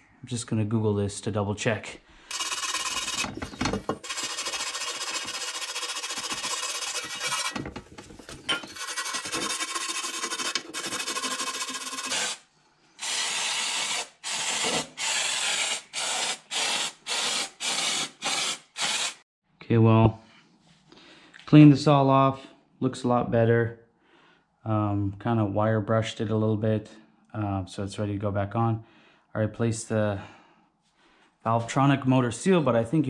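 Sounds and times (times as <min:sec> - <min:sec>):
wire brush scrubbing metal: 0:02.3 - 0:12.4.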